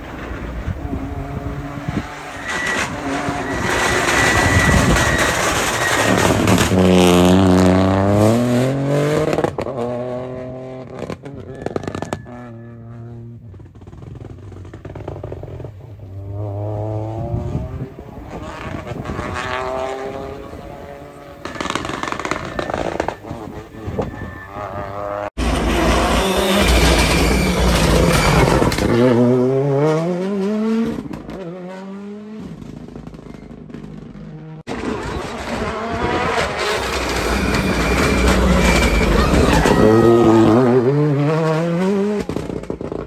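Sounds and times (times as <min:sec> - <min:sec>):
car engines revving hard: 0:00.6 - 0:13.5, 0:14.7 - 0:43.0.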